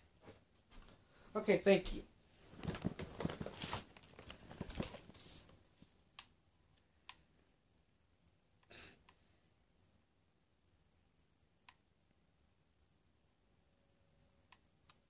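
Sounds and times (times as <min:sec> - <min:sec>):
close rustling and handling: 0:02.3 - 0:06.0.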